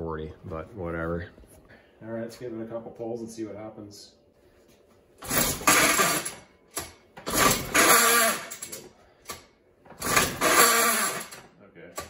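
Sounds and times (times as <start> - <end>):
recoil starter rope whirring: 5.2 - 6.4, 7.2 - 8.8, 9.9 - 11.4.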